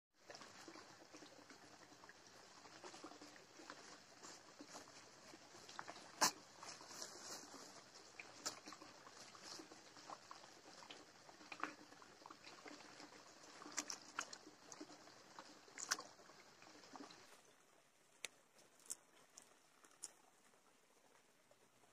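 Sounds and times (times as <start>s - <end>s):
water pouring: 0.2s - 17.6s.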